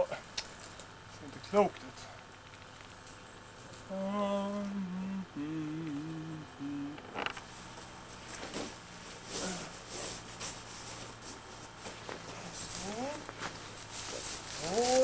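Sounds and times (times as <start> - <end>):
man humming a tune: 3.8 - 7.3, 9.3 - 9.8, 12.5 - 13.3, 14.5 - 15.0
rustling: 7.2 - 15.0.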